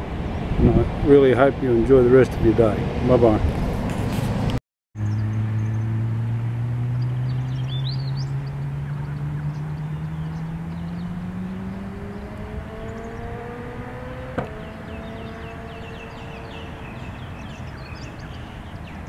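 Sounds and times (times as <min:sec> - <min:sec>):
bird chirping: 0:05.0 - 0:19.0
low engine drone: 0:05.0 - 0:19.0.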